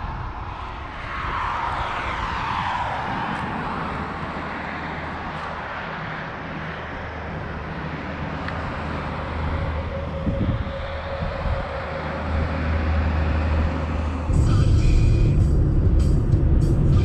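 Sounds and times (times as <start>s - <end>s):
highway traffic passing: 0.0s - 17.0s
low rumble: 8.0s - 17.0s.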